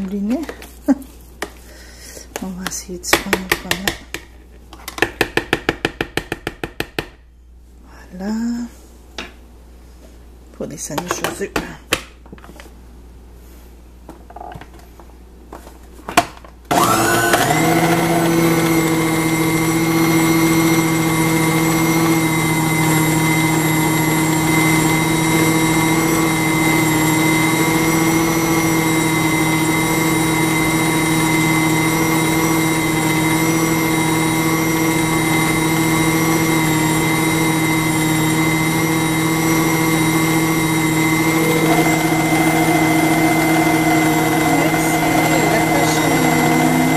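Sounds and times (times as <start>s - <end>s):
food processor motor running: 16.7s - 46.9s.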